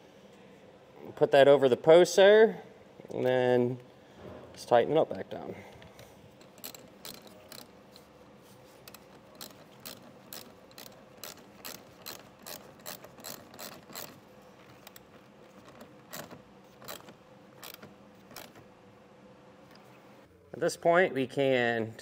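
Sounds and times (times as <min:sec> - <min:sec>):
ratchet wrench clicking: 0:06.4 - 0:07.7, 0:08.8 - 0:14.2, 0:15.7 - 0:17.8, 0:18.4 - 0:18.6.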